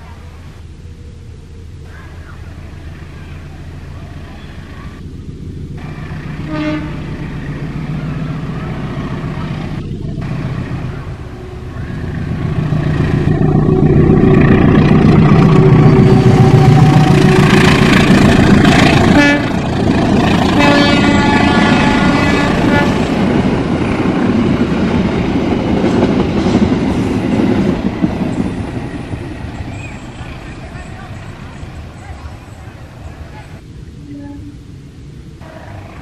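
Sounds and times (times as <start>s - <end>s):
train coaches rolling: 0.0s - 34.7s, 35.4s - 36.0s
diesel locomotive engine rumble: 0.0s - 36.0s
train horn blast: 5.8s - 7.4s, 9.4s - 23.4s, 34.0s - 34.6s.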